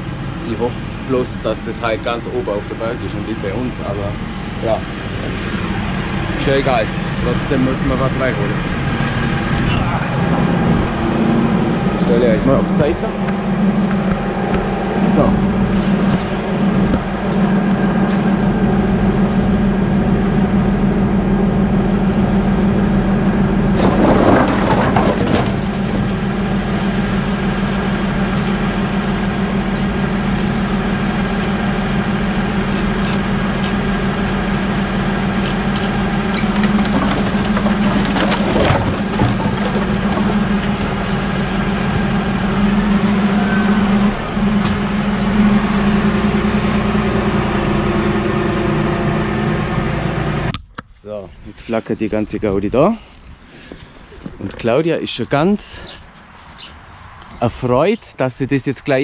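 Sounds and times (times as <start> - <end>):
tractor diesel engine running: 0.0 - 57.9
firewood logs clattering: 23.6 - 27.4, 35.1 - 43.1.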